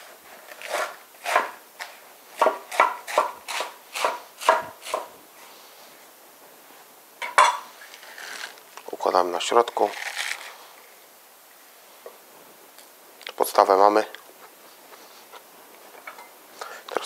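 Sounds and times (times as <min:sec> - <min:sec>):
knife chopping on wooden board: 0:00.6 - 0:01.6, 0:02.4 - 0:05.1.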